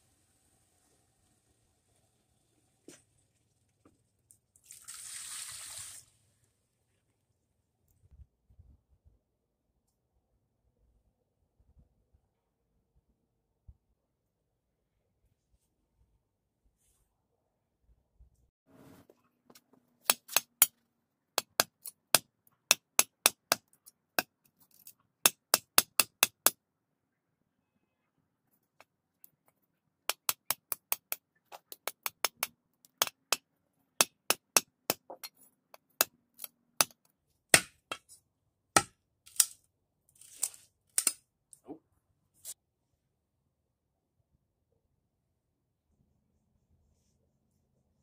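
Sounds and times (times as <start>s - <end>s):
blade chopping into wood: 37.6s - 38.0s, 38.8s - 39.5s.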